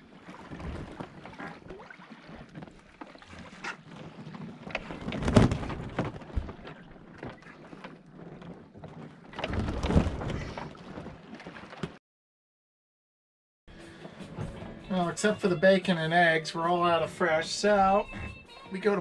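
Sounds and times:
water washing along hull: 0.0s - 12.0s.

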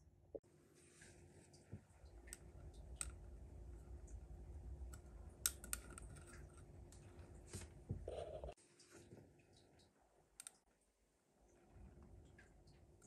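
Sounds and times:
tweezers clicking on glass jar: 5.4s - 6.6s.

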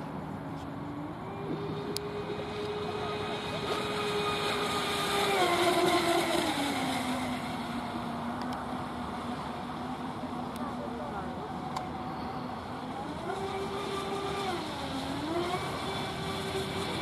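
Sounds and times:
speedboat motor whine: 0.0s - 17.0s.

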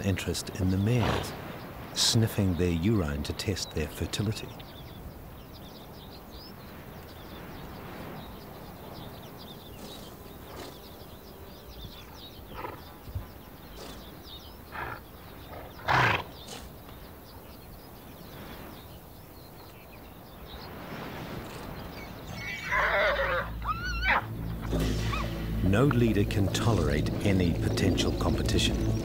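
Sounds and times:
outdoor background noise: 0.0s - 29.0s
small horse sounds: 9.8s - 11.0s, 12.5s - 17.0s.

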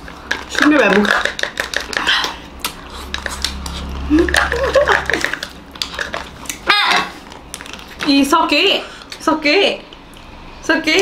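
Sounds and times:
spoons scraping ice cream cups: 0.0s - 9.3s.

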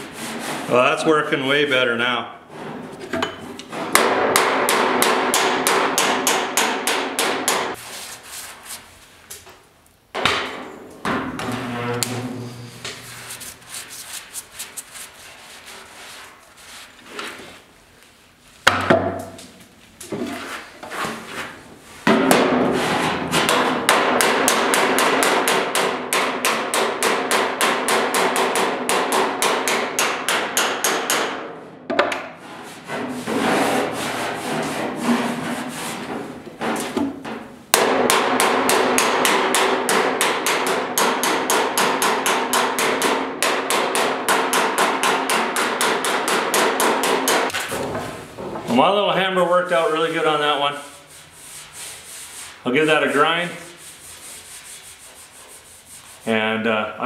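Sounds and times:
hammer tapping steel panel: 3.8s - 7.8s, 23.4s - 31.4s, 36.6s - 48.1s.

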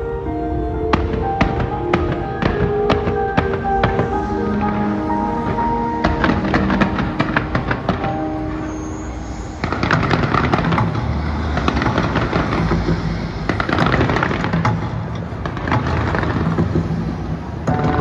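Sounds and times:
music: 0.0s - 18.0s
fireworks bangs and crackles: 0.9s - 18.0s.

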